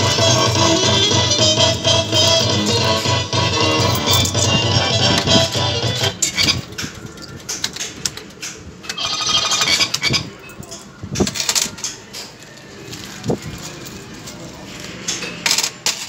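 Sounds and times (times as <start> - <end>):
fruit machine tune: 0.0 - 6.7
arcade background noise: 0.0 - 16.0.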